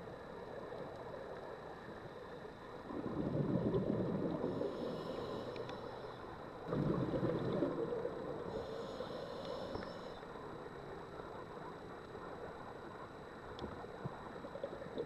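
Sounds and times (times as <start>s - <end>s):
regulator exhaust bubbles underwater: 2.8s - 5.0s, 6.6s - 8.5s.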